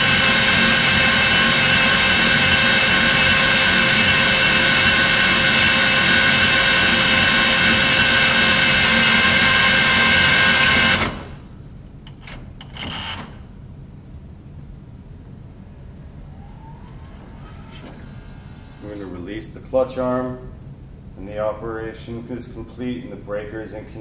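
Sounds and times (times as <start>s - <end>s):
motor drive whining: 0.0s - 21.1s.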